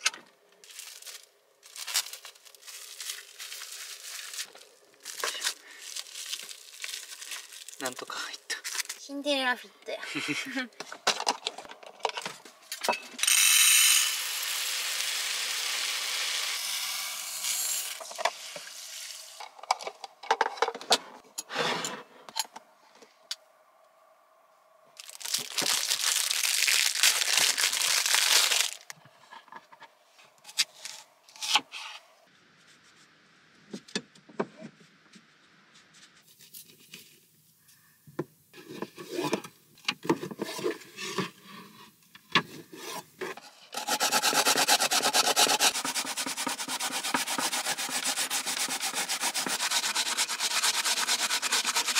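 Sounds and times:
knife peeling radish: 43.8s - 51.9s
radish rasping on plastic grater: 43.8s - 51.9s.

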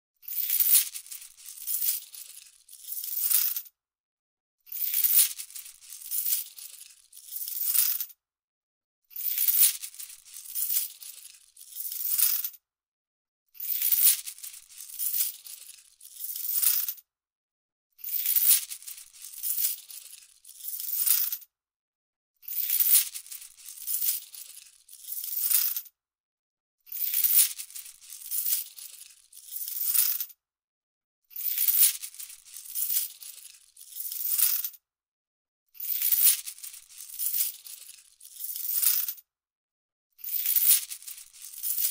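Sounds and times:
coins rattling: 0.4s - 3.6s, 4.8s - 8.1s, 9.3s - 12.5s, 13.7s - 17.0s, 18.2s - 21.4s, 22.6s - 25.8s, 27.1s - 30.3s, 31.5s - 34.7s, 35.9s - 39.2s, 40.4s - 41.9s.

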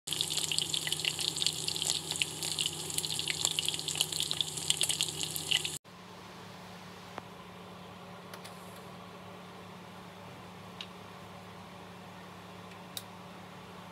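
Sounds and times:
meat searing in hot fat: 0.1s - 5.8s
low steady hum: 0.1s - 13.9s.

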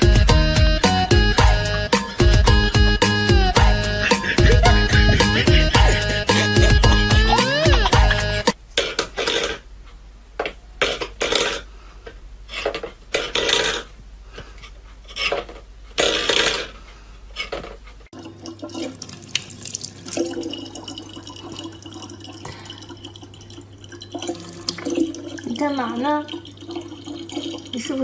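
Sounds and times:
tap water running into bottle: 18.2s - 28.0s.

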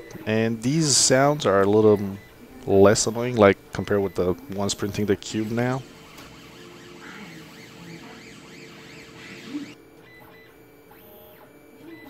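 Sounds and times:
three d printer humming: 0.0s - 12.0s
stepper motors whining: 4.0s - 12.0s.

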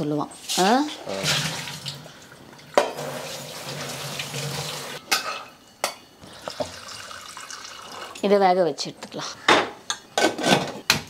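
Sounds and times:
tap water running into colander: 0.5s - 5.0s, 6.5s - 8.3s
steel kitchenware clanking: 5.0s - 6.1s.

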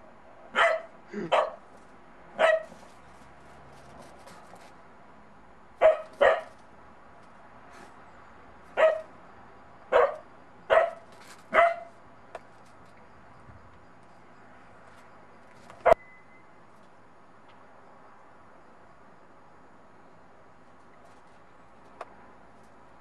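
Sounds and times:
puppy barking: 0.5s - 1.6s, 2.4s - 2.8s, 5.8s - 6.6s, 8.8s - 9.1s, 9.9s - 11.9s.

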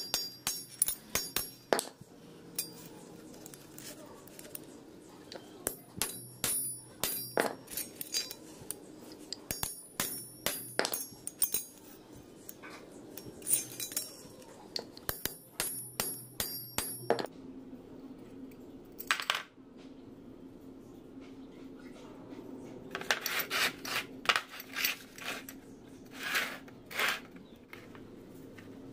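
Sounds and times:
steel pieces clinking on plate: 0.0s - 2.0s, 2.6s - 4.6s, 5.6s - 12.6s, 13.2s - 17.3s.

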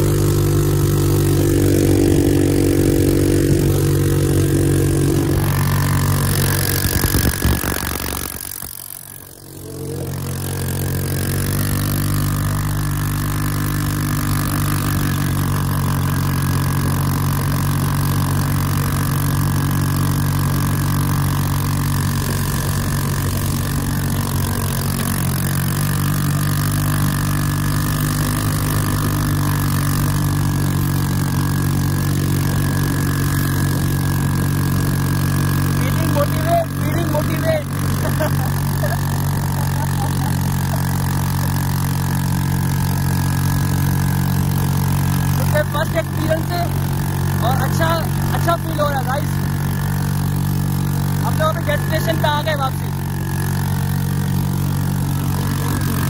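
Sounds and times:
buggy engine droning: 0.0s - 56.0s.

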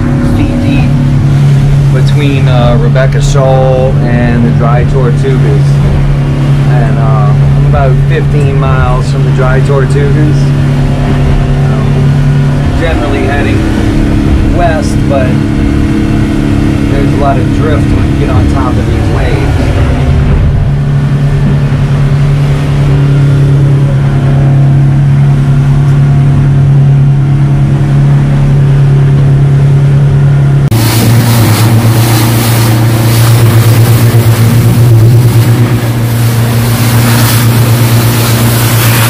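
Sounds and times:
outboard engine drone: 0.0s - 39.0s
rushing hiss of water and wind: 30.7s - 39.0s.

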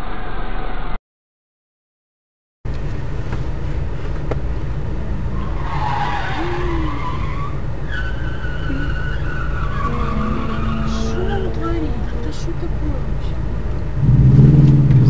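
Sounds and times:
car cabin rumble: 2.7s - 15.0s
tyres screeching: 4.1s - 13.9s.

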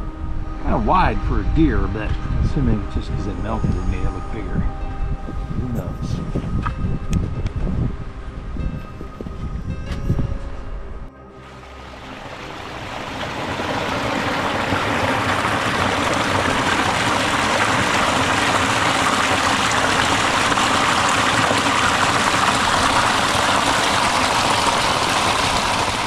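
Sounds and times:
stream water rushing: 11.2s - 26.0s.

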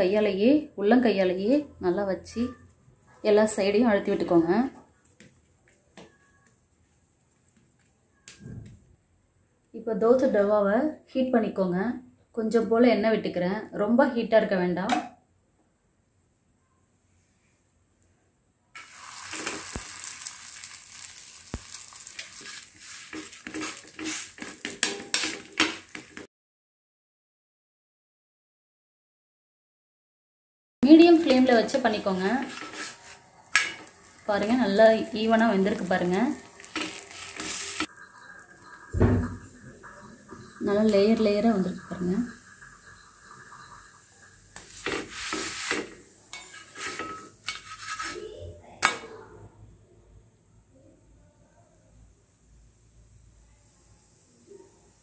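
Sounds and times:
dough sizzling in oil: 18.8s - 26.3s, 30.8s - 48.4s, 51.9s - 55.0s
wooden spatula scraping pan: 18.8s - 26.3s, 31.1s - 48.4s.

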